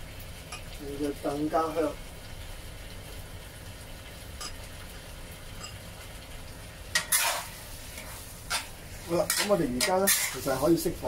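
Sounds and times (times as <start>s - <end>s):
spatula scraping in a wok: 6.9s - 11.0s.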